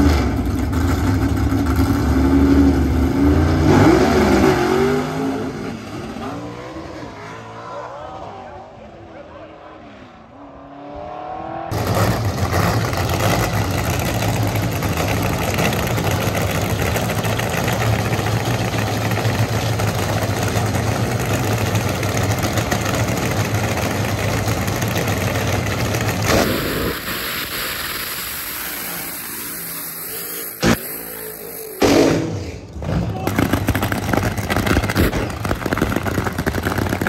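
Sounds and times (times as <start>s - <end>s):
car engine running: 11.6s - 37.0s
loud rushing noise: 26.2s - 37.0s.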